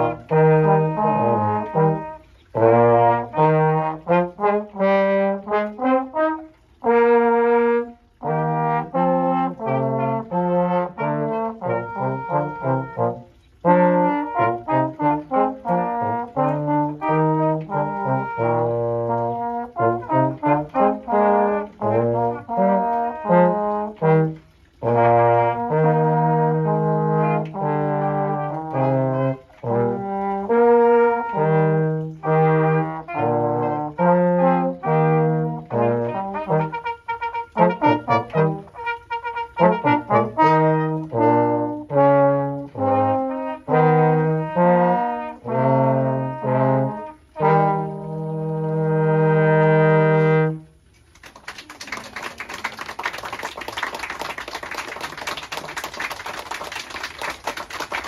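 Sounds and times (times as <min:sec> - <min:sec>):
brass trio playing: 0:00.0 - 0:51.2, 0:52.4 - 0:58.0
audience applause: 0:51.1 - 0:58.0.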